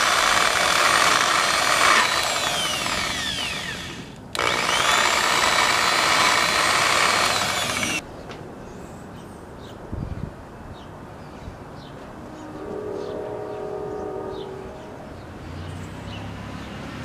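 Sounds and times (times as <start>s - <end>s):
electric buffer motor running: 0.0s - 8.0s
screwdriver scraping spinning pad: 0.2s - 8.0s.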